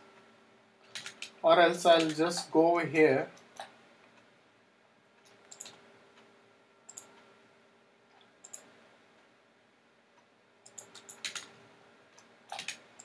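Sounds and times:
computer mouse clicking: 0.8s - 2.5s, 5.2s - 6.3s, 6.9s - 7.3s, 8.1s - 8.7s, 10.6s - 11.6s, 12.2s - 13.0s.

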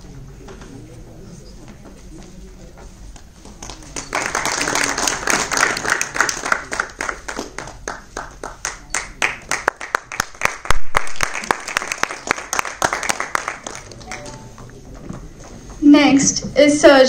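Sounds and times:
audience applauding: 3.6s - 14.5s.

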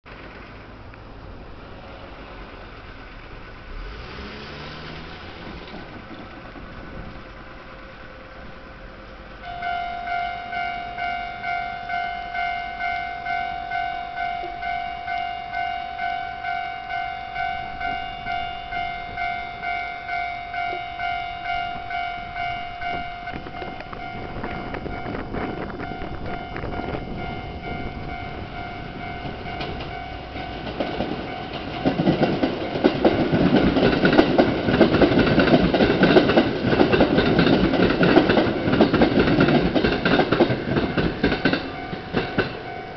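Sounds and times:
level-crossing warning bell ringing: 9.4s - 42.9s
train wheels clattering over rails: 22.8s - 42.9s.

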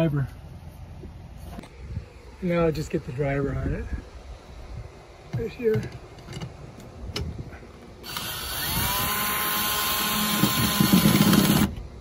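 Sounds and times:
cordless drill motor whining: 8.0s - 11.8s.

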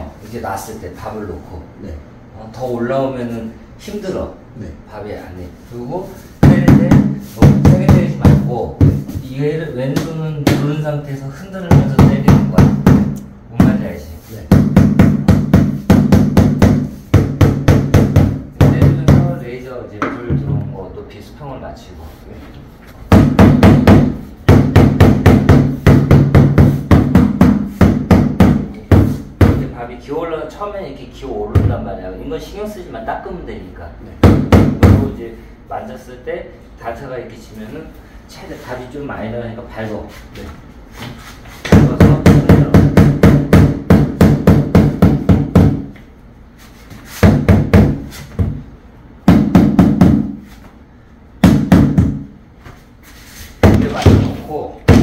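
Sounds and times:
mallet thudding on tile: 23.1s - 29.6s, 47.2s - 48.6s, 51.4s - 52.3s, 53.6s - 55.0s.

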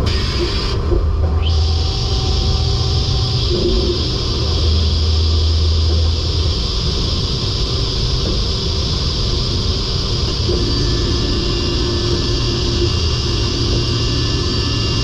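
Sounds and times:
higher machine hum: 0.0s - 15.0s
low hum: 0.0s - 15.0s
machine rushing noise: 0.0s - 15.0s.

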